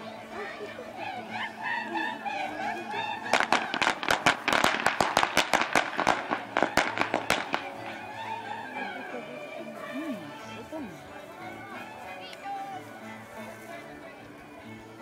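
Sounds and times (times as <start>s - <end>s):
firecrackers banging: 3.3s - 8.0s.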